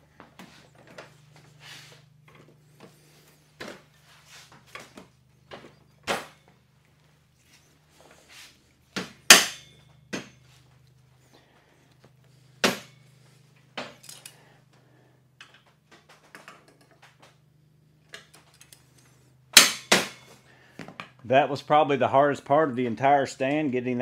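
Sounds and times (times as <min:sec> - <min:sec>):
metal parts clanking: 0:13.9 - 0:14.4.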